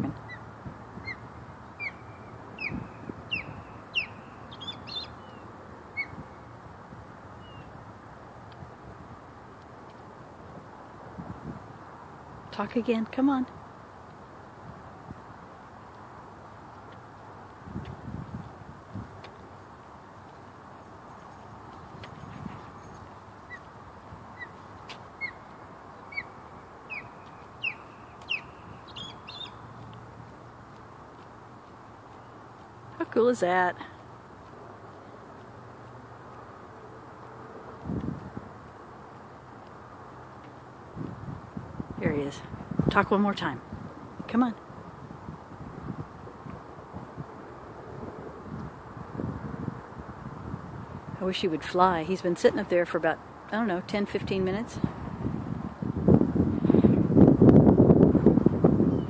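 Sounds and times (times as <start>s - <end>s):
osprey whistled calls: 1.0s - 1.2s, 1.8s - 5.4s, 6.0s - 6.2s, 25.2s - 25.4s, 26.1s - 29.6s.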